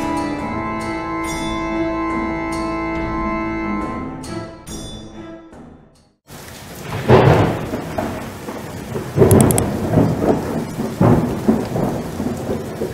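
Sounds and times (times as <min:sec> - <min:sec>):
music: 0:00.0 - 0:06.3
heavy rain: 0:06.3 - 0:12.9
thunder rolling: 0:06.3 - 0:12.9.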